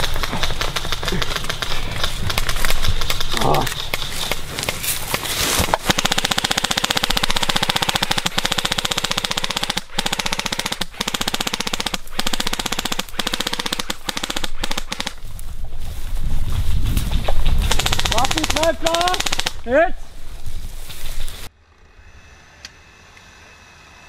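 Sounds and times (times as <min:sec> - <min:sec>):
airsoft gun firing full-auto: 0:05.8 - 0:15.2, 0:17.7 - 0:19.6.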